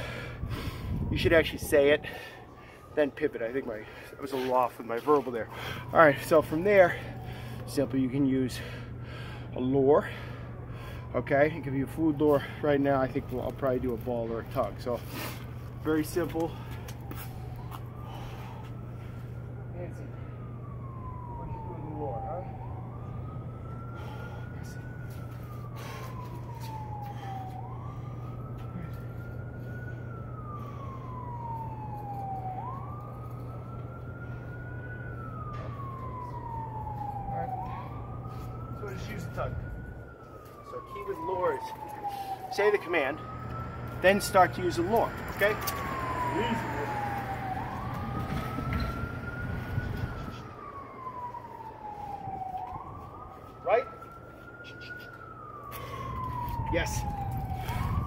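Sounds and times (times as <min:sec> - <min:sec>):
siren wailing: 0:00.0 - 0:58.0
steady low hum: 0:22.4 - 0:53.6.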